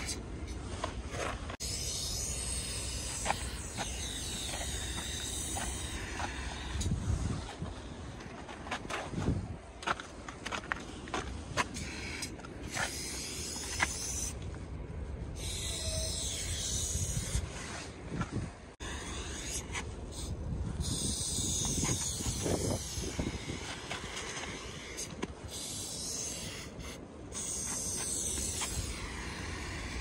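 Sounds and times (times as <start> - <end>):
spray paint can hissing: 1.6 - 6.9, 11.8 - 14.4, 15.4 - 17.4, 18.8 - 30.0.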